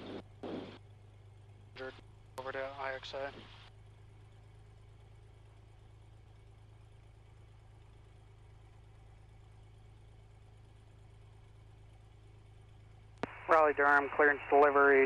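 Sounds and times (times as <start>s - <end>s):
aircraft engine idling: 0.0s - 15.0s.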